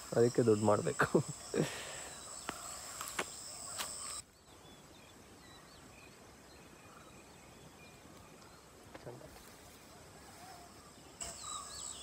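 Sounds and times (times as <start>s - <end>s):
insect chorus shrilling: 0.0s - 4.3s, 10.3s - 12.0s
faint bird chirps: 0.0s - 12.0s
rural background: 0.0s - 12.0s.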